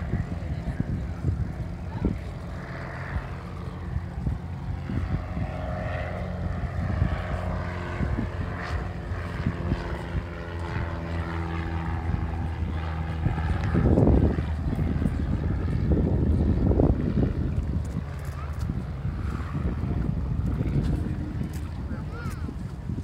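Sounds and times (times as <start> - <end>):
propeller airplane engine droning: 0.0 - 23.0.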